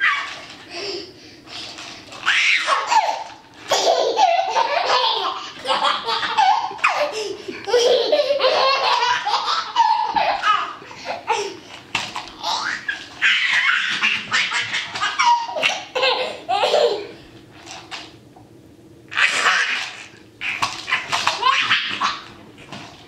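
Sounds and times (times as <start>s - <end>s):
toddler laughing: 2.4s - 11.6s, 12.4s - 17.2s, 20.9s - 22.3s.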